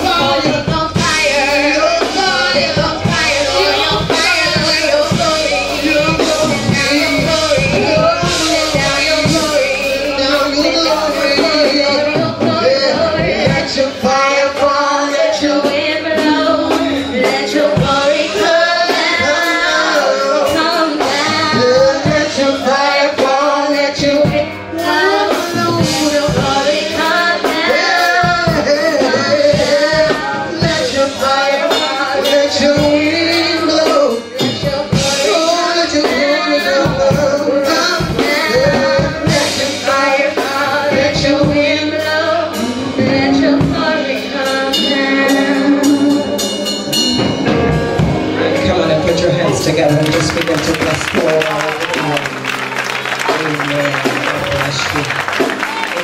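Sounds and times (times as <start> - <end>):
choir singing worship songs: 0.0 - 56.0
instrumental accompaniment: 0.0 - 56.0
percussion strikes: 42.6 - 56.0.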